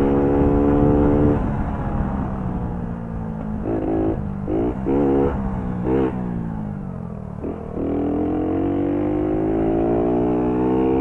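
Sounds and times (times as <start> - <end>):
moped engine revving: 3.6 - 11.0.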